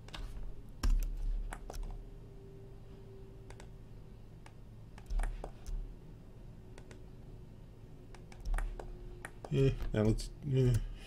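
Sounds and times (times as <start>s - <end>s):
keyboard and mouse clicks: 0.0s - 2.0s, 3.4s - 3.8s, 4.4s - 5.8s, 6.7s - 7.1s, 8.1s - 9.9s.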